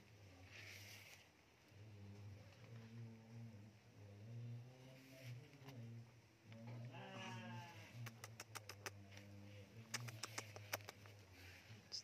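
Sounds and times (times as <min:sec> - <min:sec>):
faint animal call: 0:06.6 - 0:12.0
sharp clicks: 0:08.0 - 0:09.0, 0:09.9 - 0:11.1.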